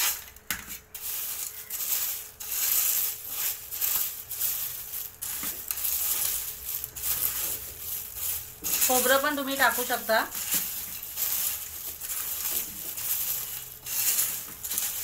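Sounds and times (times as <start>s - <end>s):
cereal flakes rustling in metal bowl: 0.0s - 15.0s.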